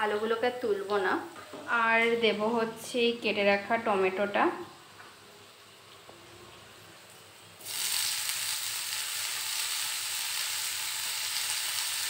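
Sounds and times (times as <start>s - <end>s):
tomato sizzling in hot oil: 5.1s - 12.0s.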